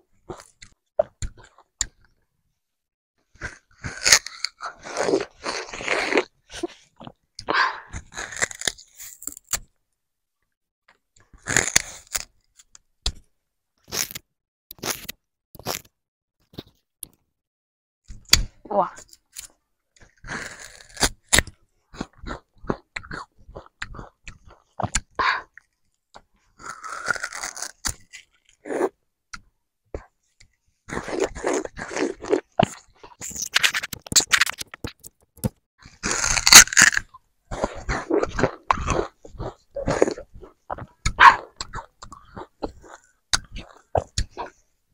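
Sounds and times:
sugarcane crunching and tearing: 3.4s - 6.3s, 8.0s - 9.7s, 11.4s - 12.3s, 13.9s - 15.9s, 20.2s - 21.6s, 26.6s - 28.6s, 30.9s - 44.6s.

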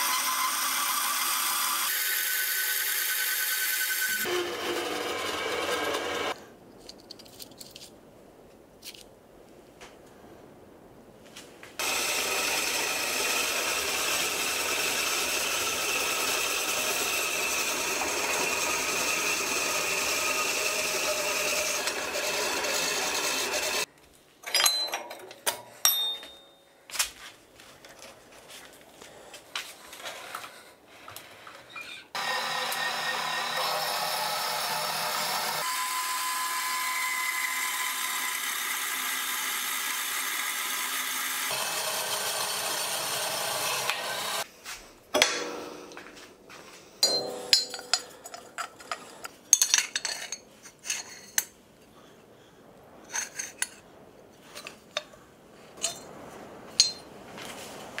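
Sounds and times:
band saw cutting steel tube: 0.0s - 6.4s, 11.8s - 23.9s, 32.0s - 44.5s
steel pieces clinking and knocking: 24.4s - 26.6s, 47.0s - 51.6s, 55.8s - 56.1s, 56.7s - 57.1s.

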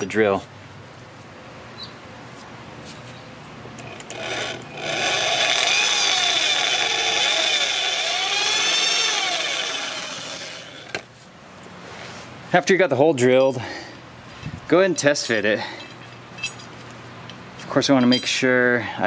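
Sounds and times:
electric drill boring through steel: 4.0s - 11.0s.

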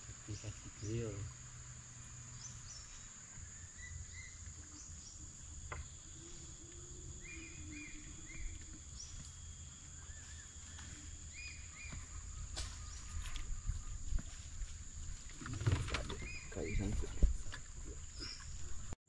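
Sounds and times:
insect drone: 0.0s - 19.0s
bird chirps: 2.3s - 14.5s, 15.5s - 17.3s.

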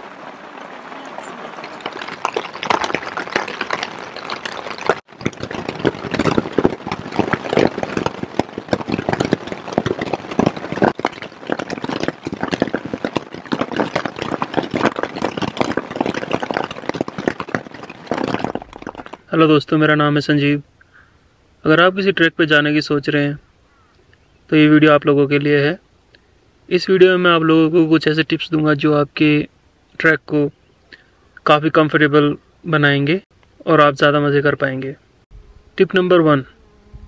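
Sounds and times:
hail and rain on tent fabric: 0.0s - 19.7s.

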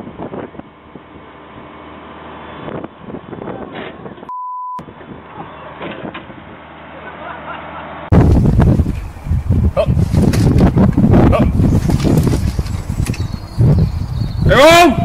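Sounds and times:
censor bleep: 4.3s - 4.8s.

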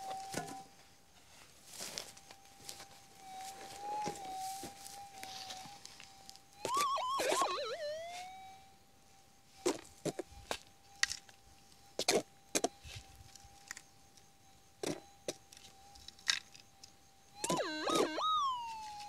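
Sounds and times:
wavering detector signal: 0.0s - 0.7s, 1.8s - 19.0s
metal detector threshold hum: 2.2s - 8.6s, 17.2s - 19.0s.

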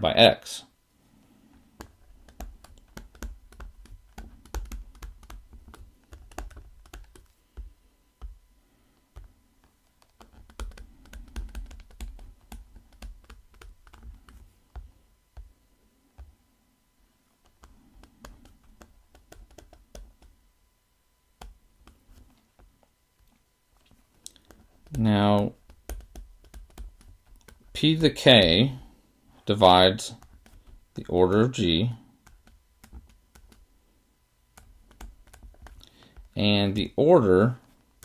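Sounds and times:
stylus tapping on tablet screen: 1.8s - 8.4s, 9.1s - 15.6s, 17.4s - 20.4s, 21.4s - 22.9s, 24.2s - 27.8s, 30.1s - 31.0s, 32.2s - 33.7s, 34.5s - 36.9s.

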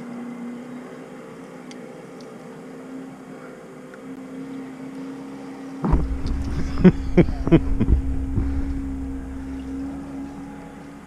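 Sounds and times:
low mechanical hum: 0.0s - 11.0s
background hiss: 2.4s - 11.0s.

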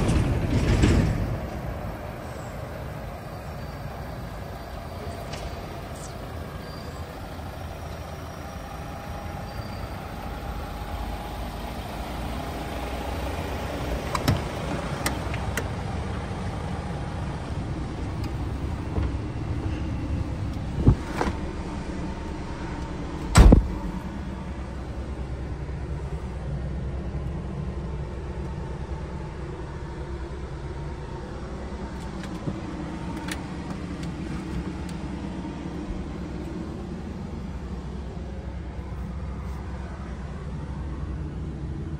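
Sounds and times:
sharp knocks and thuds: 0.0s - 1.6s, 20.8s - 21.4s, 23.3s - 23.8s
diesel truck engine idling: 0.0s - 41.9s.

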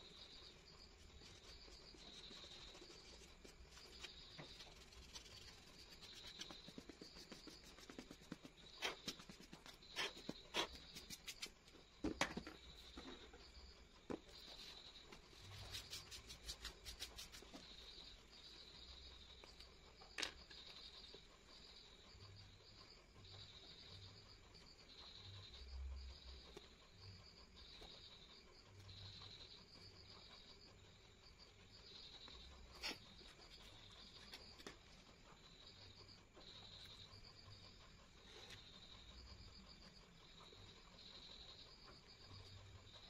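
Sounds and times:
eraser rubbing on paper: 1.0s - 11.6s, 14.5s - 17.8s.

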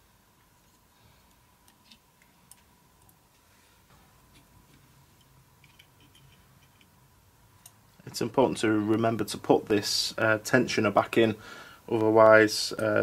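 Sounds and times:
faint clicks of small parts: 0.4s - 3.4s, 4.3s - 7.0s.

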